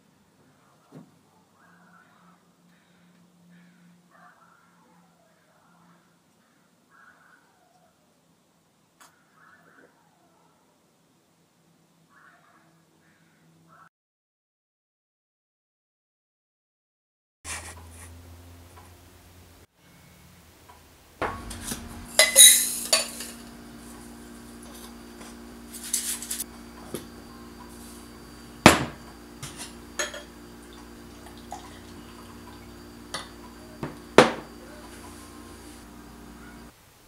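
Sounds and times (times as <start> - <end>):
steady low hum: 17.5 - 36.8.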